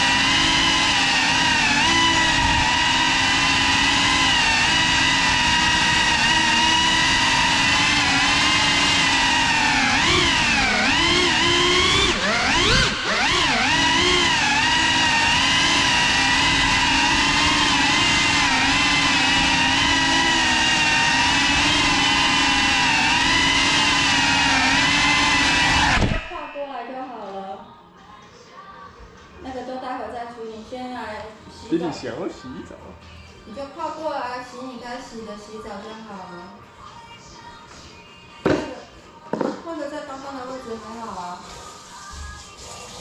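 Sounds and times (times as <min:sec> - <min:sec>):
drone motors whining: 0:00.0 - 0:26.6.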